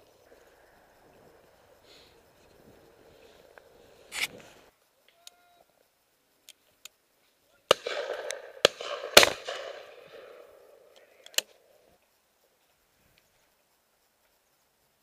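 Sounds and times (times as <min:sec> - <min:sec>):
shotgun shots with echo: 0:07.7 - 0:10.4.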